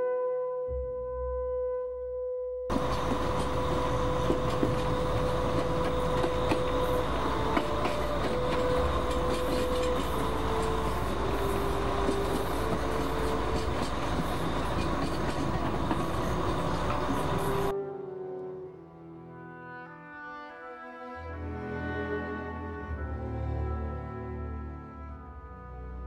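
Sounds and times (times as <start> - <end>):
faint slow melody: 0.0 - 15.0
train rumbling on rails: 2.7 - 17.7
train wheels clicking: 2.7 - 17.7.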